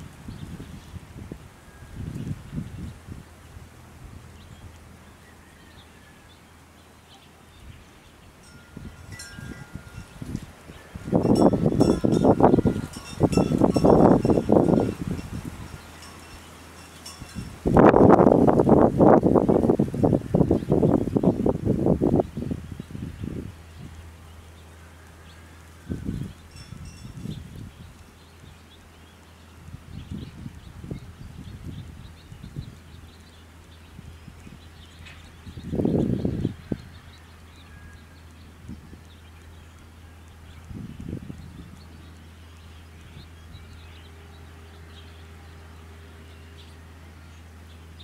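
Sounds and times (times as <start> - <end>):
wind buffeting microphone: 0.0 - 45.6
light breeze: 0.0 - 48.0
wind chime ringing: 8.4 - 17.8, 26.5 - 27.4.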